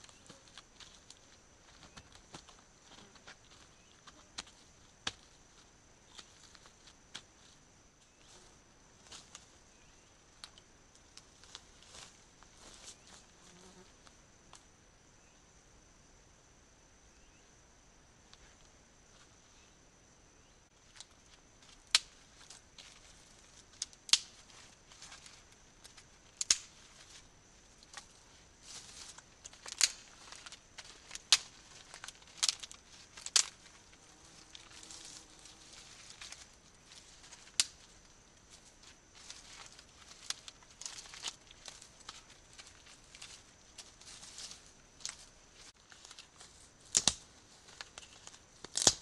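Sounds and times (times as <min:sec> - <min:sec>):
rustling of twig pile: 0:11.3 - 0:13.3, 0:20.9 - 0:48.9
twigs snapping: 0:23.8 - 0:27.1, 0:28.7 - 0:37.9, 0:38.8 - 0:49.0.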